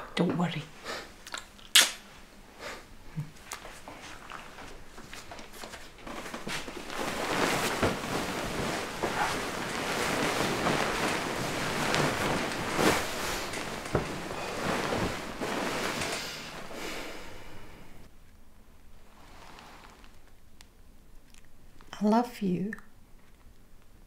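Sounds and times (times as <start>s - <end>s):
bedsheets rustling: 2.1s - 18.1s, 19.0s - 20.2s.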